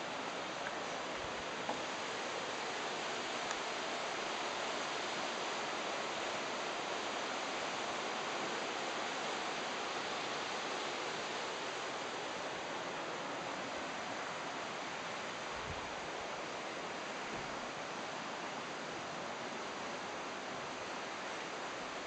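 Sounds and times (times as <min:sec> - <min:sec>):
fast river rushing: 0:00.0 - 0:22.0.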